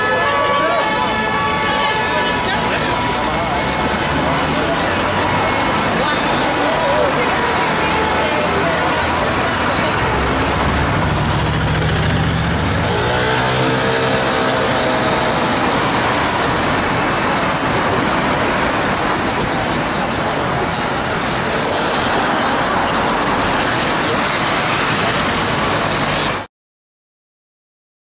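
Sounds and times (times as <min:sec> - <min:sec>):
city street traffic: 0:00.0 - 0:26.5
vehicle passing: 0:00.4 - 0:19.9.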